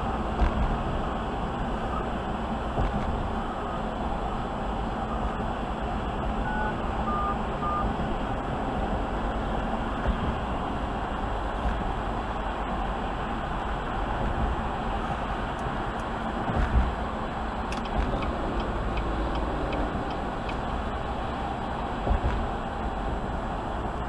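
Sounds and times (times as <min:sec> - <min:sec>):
pickup truck road and engine noise: 0:00.0 - 0:24.0
short electronic beeps: 0:06.4 - 0:07.8.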